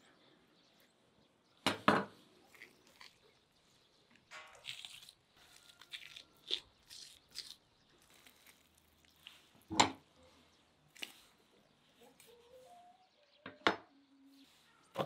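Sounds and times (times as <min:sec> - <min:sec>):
membrane peeling off liver: 0:02.4 - 0:03.6, 0:04.4 - 0:09.7.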